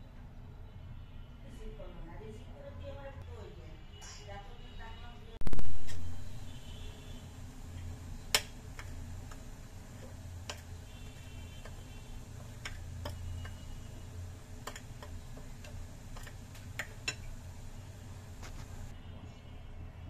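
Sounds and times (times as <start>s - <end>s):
low hum: 5.4s - 8.2s.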